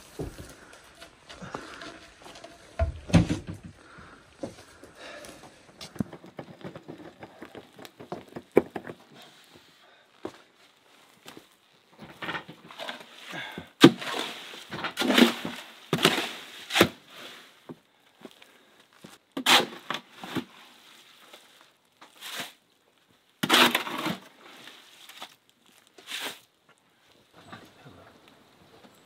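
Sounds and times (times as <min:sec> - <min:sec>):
shovel scraping steel wheelbarrow: 0:12.1 - 0:17.6, 0:19.4 - 0:20.5, 0:22.1 - 0:22.6, 0:23.4 - 0:25.4, 0:26.0 - 0:26.5.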